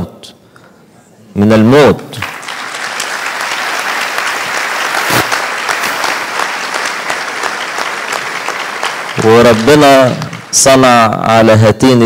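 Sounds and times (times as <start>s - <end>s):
audience applauding: 2.2s - 11.1s.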